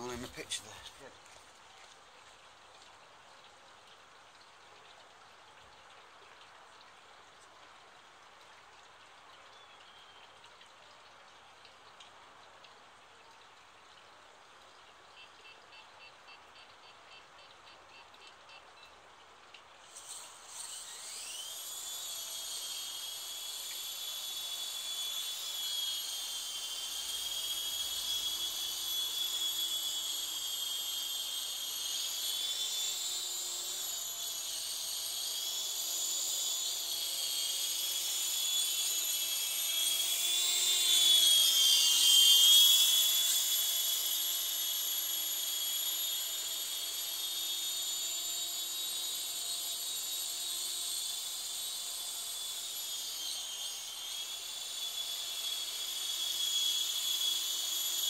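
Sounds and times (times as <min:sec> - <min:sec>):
rc helicopter motor whine: 0:00.0 - 0:01.2, 0:19.8 - 0:58.0.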